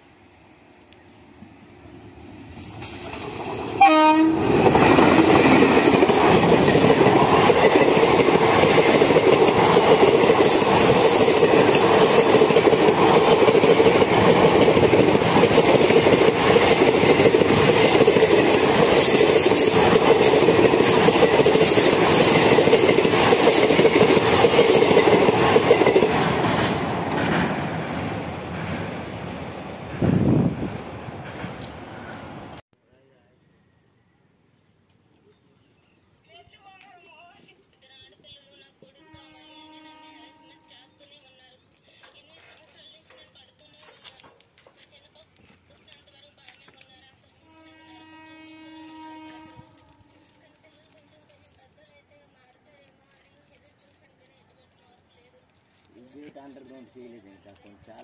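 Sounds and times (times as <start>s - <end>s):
train wheels rumbling on track: 1.4s - 32.6s
train horn blast: 3.8s - 4.6s, 39.0s - 40.7s, 47.4s - 50.4s.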